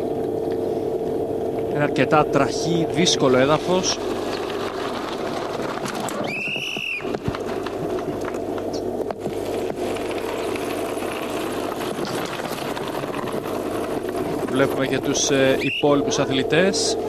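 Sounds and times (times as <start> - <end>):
engine droning: 1.6 - 17.0.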